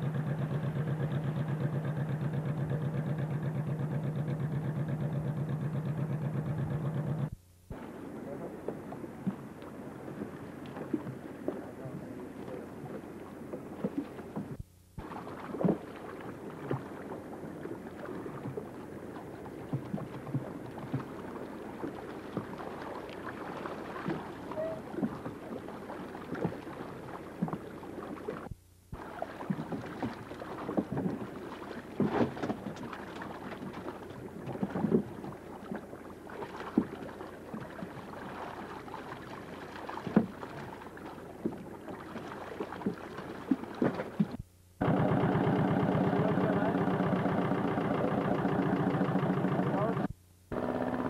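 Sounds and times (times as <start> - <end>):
boat engine idling: 0.0 - 51.0
water sloshing and splashing: 7.7 - 44.5
net and rope knocking on boat: 29.4 - 35.8, 39.8 - 40.8.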